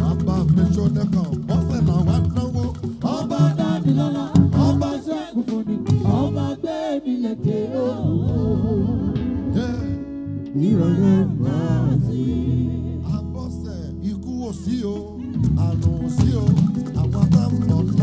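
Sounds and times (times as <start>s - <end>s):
percussion: 0.0s - 8.4s, 10.7s - 18.0s
lead voice singing: 0.0s - 18.0s
steady bass line: 4.4s - 5.0s, 8.0s - 18.0s.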